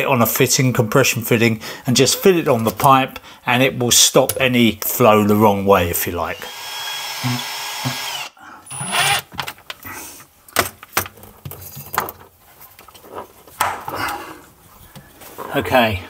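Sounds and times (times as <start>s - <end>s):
cordless drill whine: 6.4s - 9.3s.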